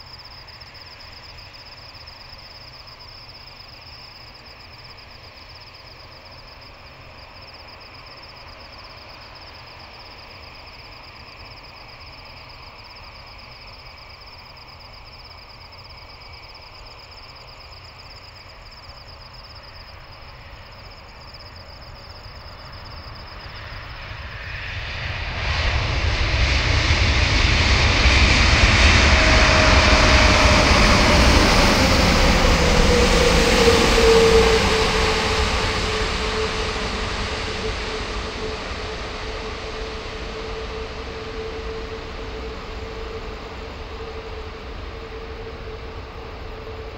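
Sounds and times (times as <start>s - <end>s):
insects chirping: 0.0s - 27.4s, 29.1s - 46.9s
jet airliner landing: 18.4s - 46.9s.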